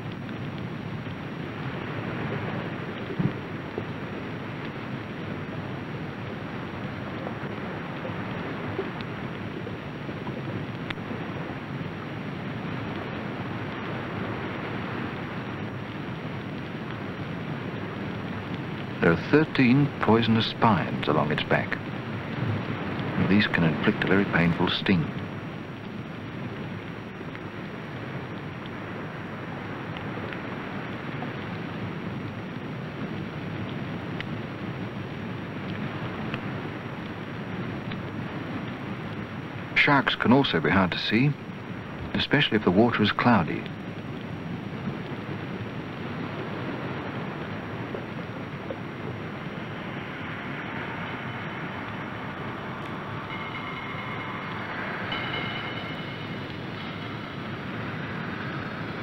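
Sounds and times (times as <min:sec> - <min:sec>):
faint ticks: 0:00.0 - 0:01.2, 0:02.9 - 0:13.9, 0:35.2 - 0:39.7
rushing water noise: 0:00.0 - 0:59.0
faint clicks: 0:07.0 - 0:11.1.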